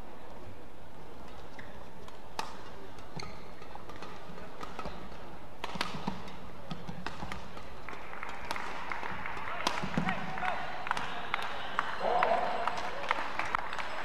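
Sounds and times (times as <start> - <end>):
arena background noise: 0.0 - 14.0
rackets striking shuttlecock: 1.2 - 8.8, 9.4 - 10.3.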